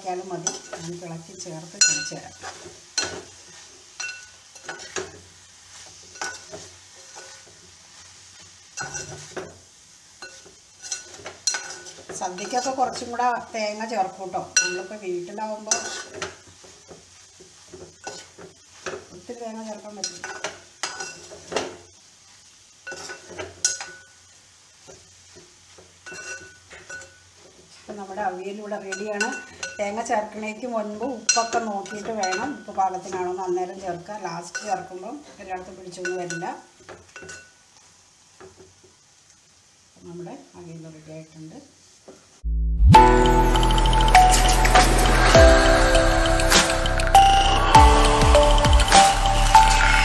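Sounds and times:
spoon scraping metal pot: 15.7 - 16.3.

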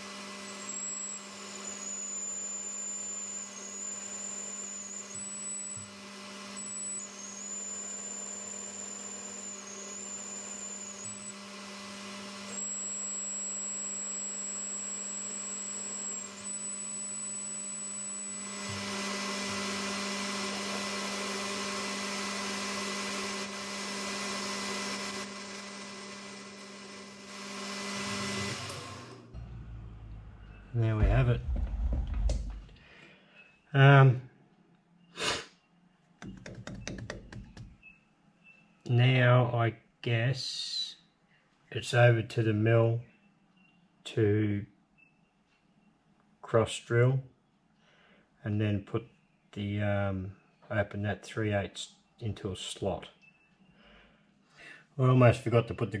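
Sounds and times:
metal lathe motor hum with whine: 0.0 - 31.2.

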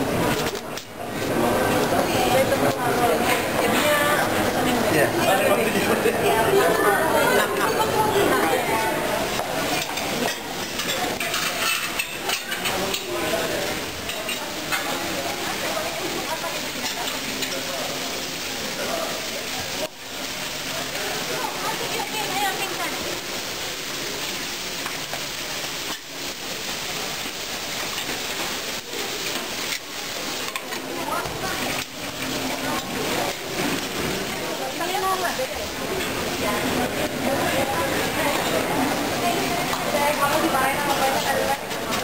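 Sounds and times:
restaurant background hiss: 0.0 - 42.0
dishes and utensils clinking: 9.3 - 17.8, 29.2 - 35.0, 35.8 - 38.9.

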